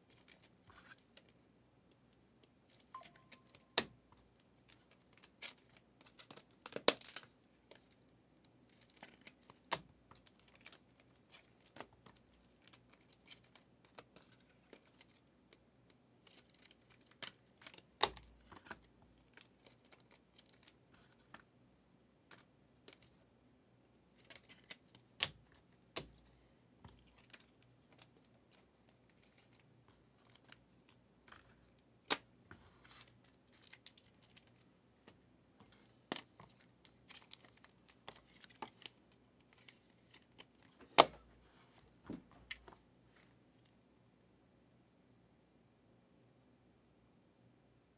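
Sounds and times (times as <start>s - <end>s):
trading cards and wrappers rustling: 2.6s - 15.3s, 16.2s - 21.4s, 24.1s - 42.8s.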